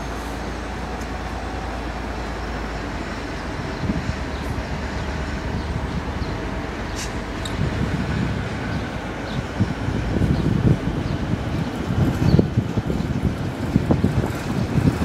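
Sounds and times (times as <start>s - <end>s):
diesel locomotive engine drone: 0.0s - 15.0s
rail noise: 0.0s - 15.0s.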